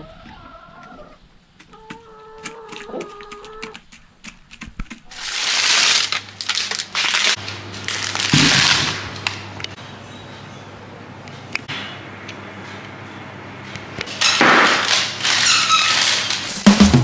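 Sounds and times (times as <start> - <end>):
plastic bag crinkling: 5.0 - 9.5, 14.8 - 16.7.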